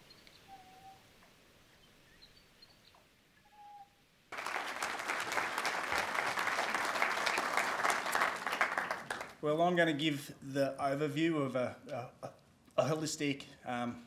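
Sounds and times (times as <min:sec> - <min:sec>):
audience applauding: 0:04.3 - 0:09.4.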